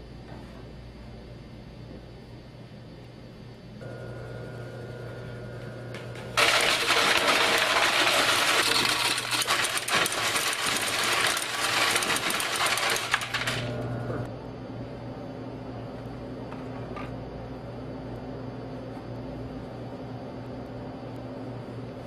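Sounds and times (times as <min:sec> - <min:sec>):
machine hum: 0:00.0 - 0:22.0
gravel clattering against metal plate: 0:06.4 - 0:13.6.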